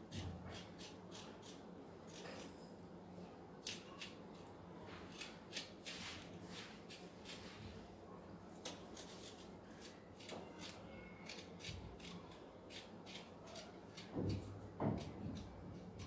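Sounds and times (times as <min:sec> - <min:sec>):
spoon scraping ginger skin: 0:08.6 - 0:14.1.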